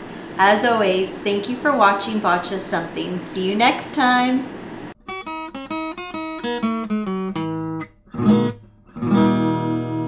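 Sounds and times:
acoustic guitar plucking and strumming: 5.0s - 10.0s.

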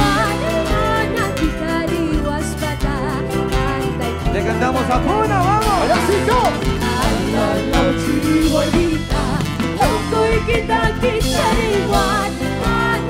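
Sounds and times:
bass line: 0.0s - 13.0s
drums: 0.0s - 13.0s
sliding lead melody: 0.0s - 13.0s.

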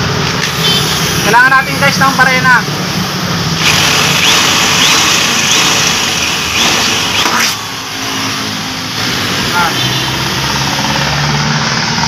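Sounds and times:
electric drill boring metal: 3.6s - 8.5s.

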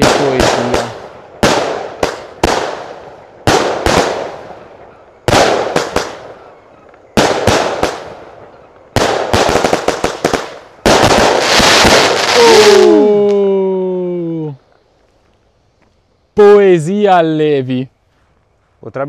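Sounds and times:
firework crackling pops: 0.0s - 13.4s
firework reports: 0.0s - 13.4s, 16.2s - 18.0s.

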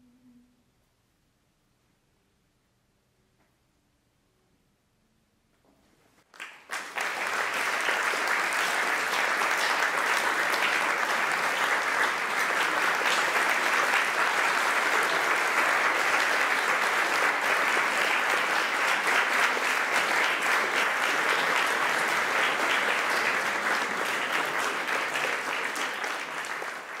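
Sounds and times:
audience applauding: 6.3s - 27.0s.

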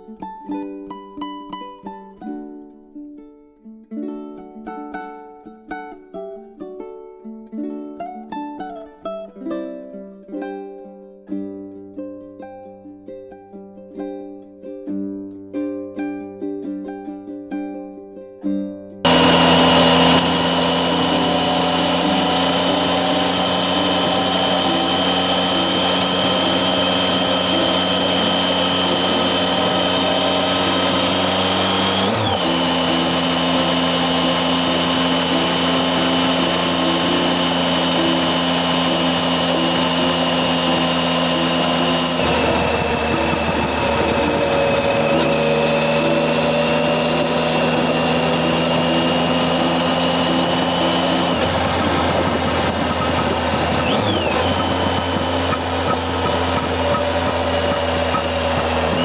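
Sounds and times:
motorcycle engine cruising: 19.1s - 59.0s
thin high whine: 19.1s - 59.0s
wind and road noise: 19.1s - 59.0s.

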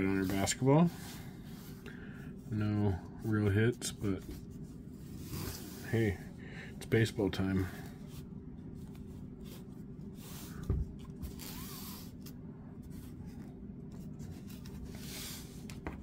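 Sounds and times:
cards rubbing on cloth: 7.9s - 16.0s.

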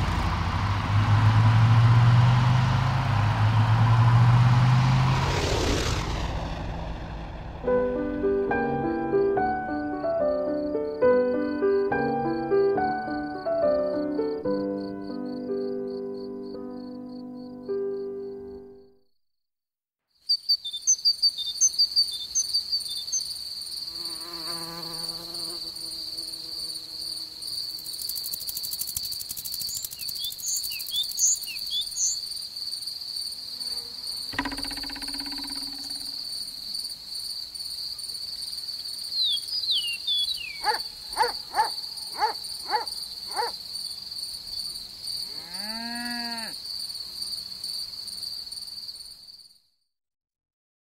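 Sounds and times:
short bird chirps: 20.2s - 23.3s, 29.7s - 32.2s, 39.2s - 41.7s
crickets chirring: 20.2s - 49.6s.

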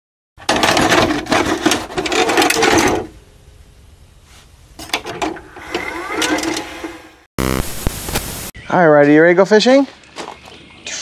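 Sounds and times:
tape mechanism clattering and whirring: 4.9s - 7.2s.

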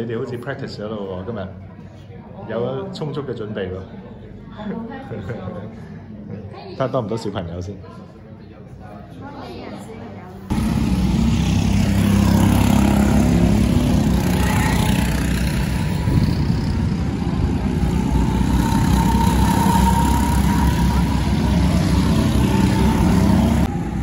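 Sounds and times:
go-kart engines droning: 10.5s - 24.0s
higher engine note: 10.5s - 24.0s.

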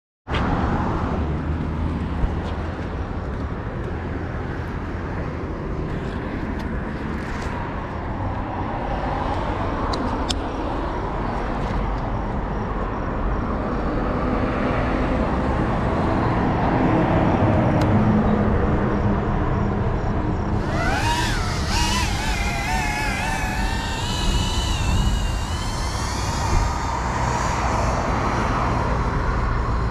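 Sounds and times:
drone motors whining: 20.5s - 29.9s.

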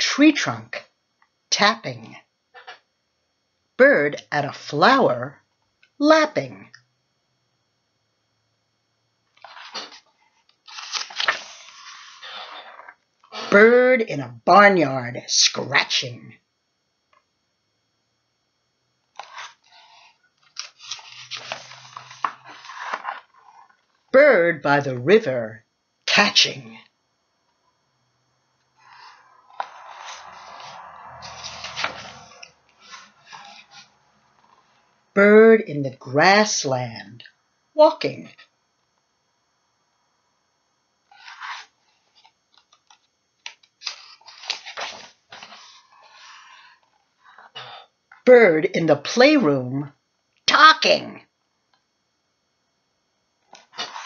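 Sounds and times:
paper page rustling: 9.4s - 13.0s, 19.2s - 23.8s, 28.8s - 34.8s, 41.1s - 47.4s, 53.5s - 54.0s.

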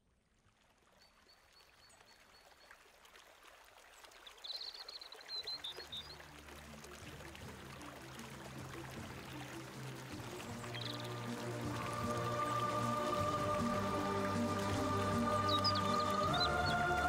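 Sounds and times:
stream running water: 0.0s - 17.0s
soft low music notes: 5.7s - 17.0s
bird chirping: 10.6s - 11.3s, 14.5s - 17.0s.

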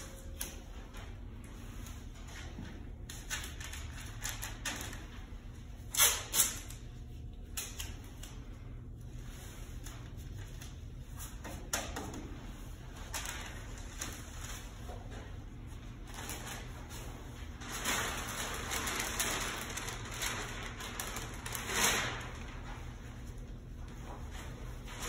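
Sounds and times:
masking tape ripping: 5.9s - 6.8s.

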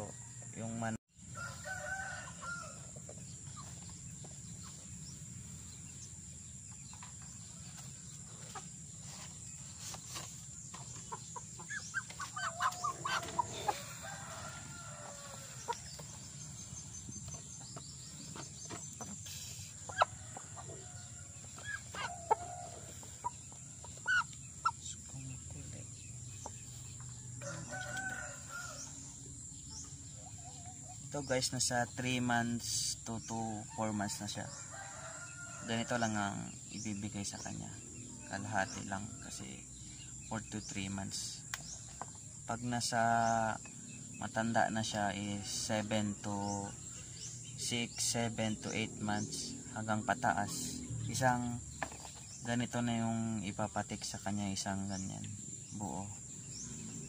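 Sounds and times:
rooster crowing: 1.3s - 3.0s, 12.4s - 16.0s, 27.2s - 29.2s, 34.0s - 36.1s
chickens clucking: 1.4s - 32.6s.

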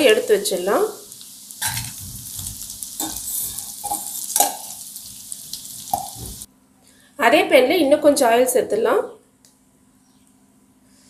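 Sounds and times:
potatoes sizzling in oil: 0.0s - 6.5s
metal tongs scraping a pan: 1.6s - 2.4s, 3.0s - 4.8s.

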